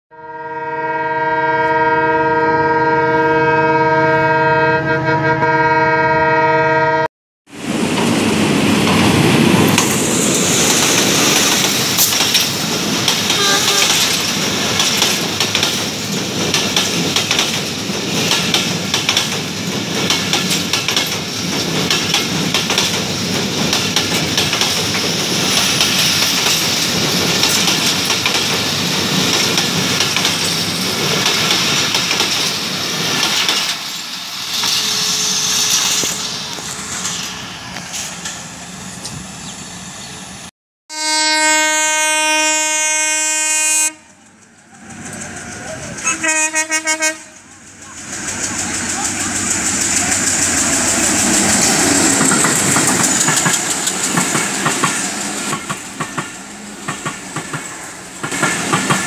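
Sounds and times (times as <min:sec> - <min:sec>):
multi-tone train horn: 0:00.1 - 0:07.1, 0:13.2 - 0:14.2, 0:40.9 - 0:44.2, 0:45.8 - 0:47.6
train rushing past: 0:07.5 - 0:59.0
wheels clattering over rail joints: 0:08.8 - 0:37.2, 0:47.3 - 0:59.0.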